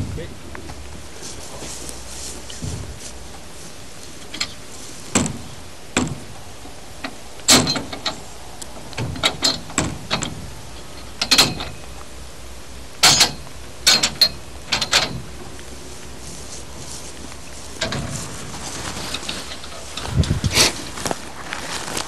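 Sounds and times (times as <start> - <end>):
metal stall panels clanking: 4.2 - 12.0, 13.0 - 15.6, 17.8 - 20.4.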